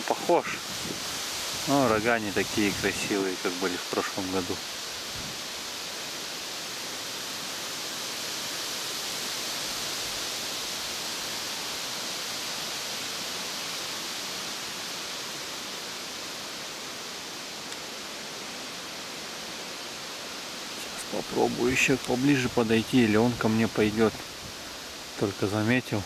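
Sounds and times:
wind through grass and leaves: 0.0 - 26.0.

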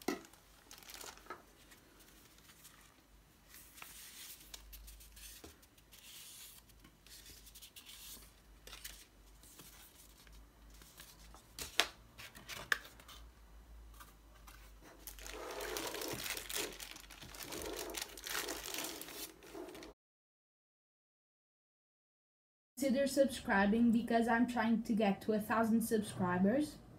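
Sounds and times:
plastic bag crinkling: 0.0 - 5.0, 14.9 - 19.9
paper leaflets rustling: 0.0 - 13.2, 13.9 - 19.9.

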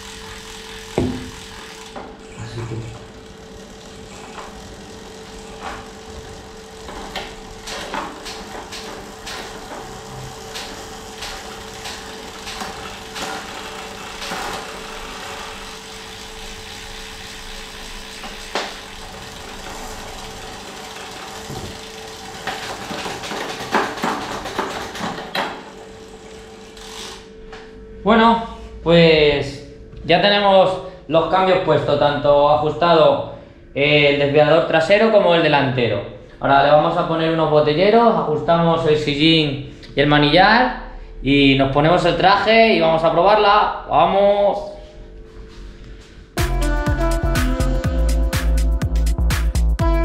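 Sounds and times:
steady hum: 0.0 - 24.0, 25.0 - 49.2
bicycle chain running over sprockets: 0.0 - 27.2
derailleur clicks and ticks: 3.2 - 25.4, 26.7 - 27.2.

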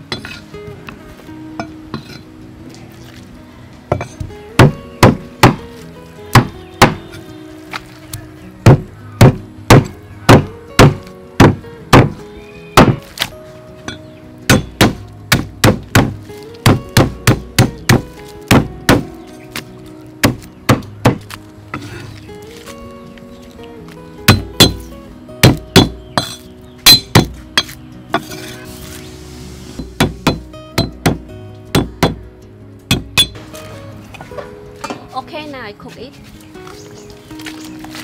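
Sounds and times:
background music: 0.0 - 38.0.

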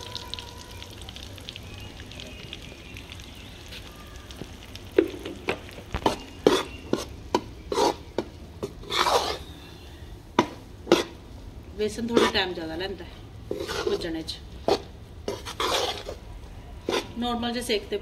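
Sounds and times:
flour sizzling in oil: 0.0 - 9.9, 13.5 - 14.1, 14.7 - 16.2
spatula scraping a pan: 6.0 - 7.1, 7.7 - 9.5, 10.9 - 11.2, 12.1 - 12.4, 13.5 - 16.2, 16.8 - 17.2.

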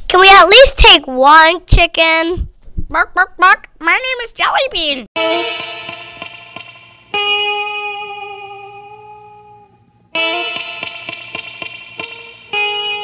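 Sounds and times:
guitar chords ringing: 5.2 - 13.0.

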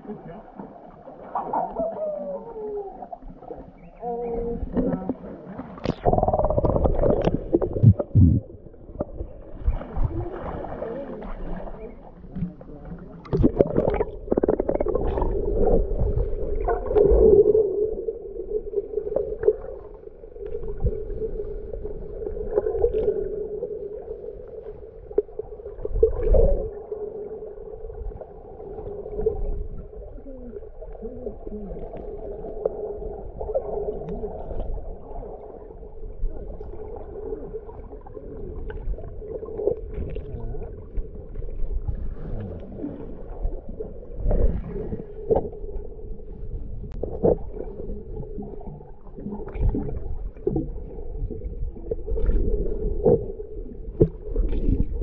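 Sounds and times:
underwater drone: 0.0 - 55.0
low underwater thuds and knocks: 6.5 - 10.4.

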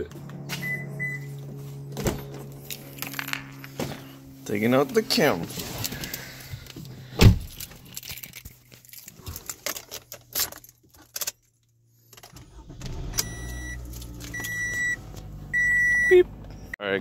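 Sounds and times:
car electrical hum: 0.0 - 9.0, 12.1 - 16.8
dashboard warning chime: 0.6 - 1.4, 13.2 - 15.0, 15.6 - 16.8
car keys jangling and clicking: 1.4 - 4.4, 5.8 - 16.0.

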